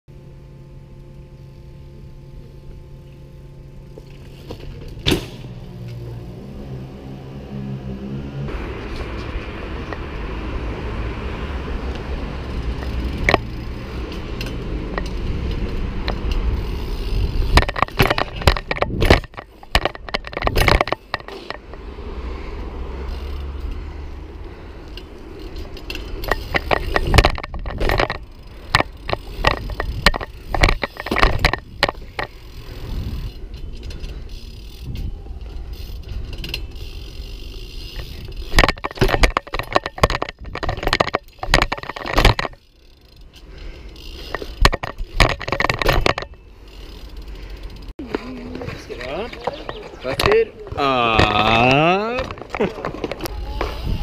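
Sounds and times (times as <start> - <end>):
bike tyres rolling: 0.1 - 54.0
bike knocks and scrapes: 3.9 - 6.1, 12.5 - 22.0, 25.3 - 43.2, 44.0 - 47.1, 48.0 - 54.0.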